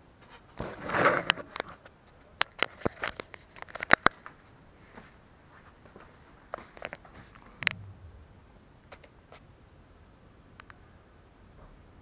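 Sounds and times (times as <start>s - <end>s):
sharp irregular clicks and knocks: 2.4s - 4.4s.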